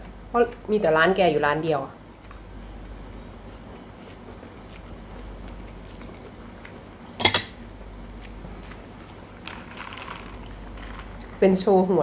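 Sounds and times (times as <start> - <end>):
quiet chewing: 2.0 - 7.2, 7.9 - 11.4
cutlery clicking on plates: 7.2 - 7.6.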